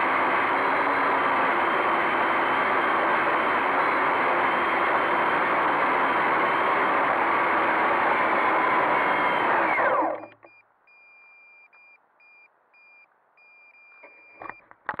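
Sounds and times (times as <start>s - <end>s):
drone motors whining: 0.0s - 10.6s
faint high beep: 10.3s - 14.6s.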